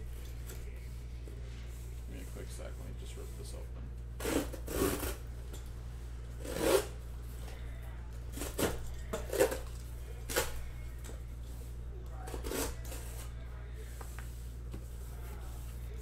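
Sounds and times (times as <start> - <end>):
knife slicing packing tape: 4.2 - 5.2, 6.4 - 6.9.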